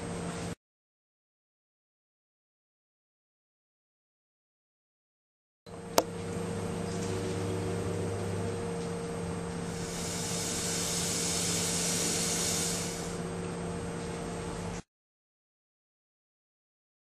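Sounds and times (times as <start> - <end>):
low hum: 5.8 - 11.0.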